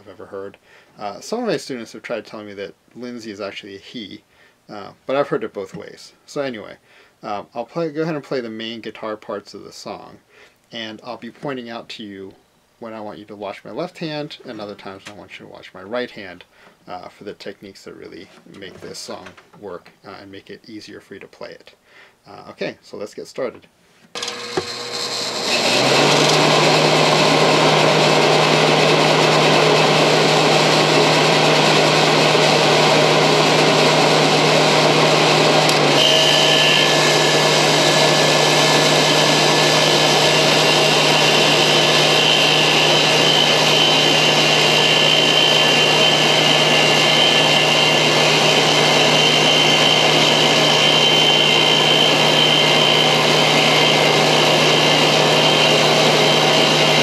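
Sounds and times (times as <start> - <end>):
high steady whine: 24.2 - 57.0.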